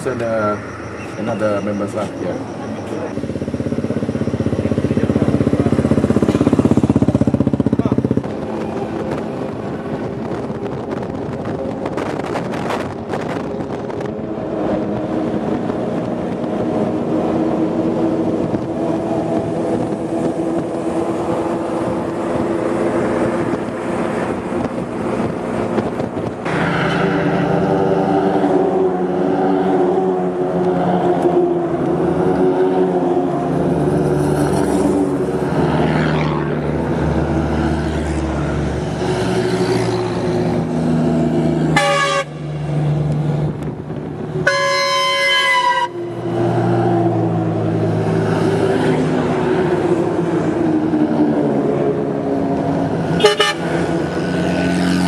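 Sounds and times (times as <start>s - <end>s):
vehicle engine running: 2.5s - 28.1s
car horn toots: 41.8s - 42.4s, 44.4s - 46.1s, 53.2s - 53.7s.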